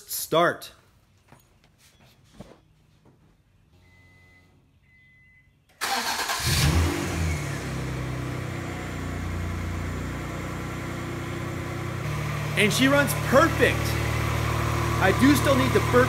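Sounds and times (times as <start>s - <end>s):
car engine cranking and idling: 5.7s - 16.0s.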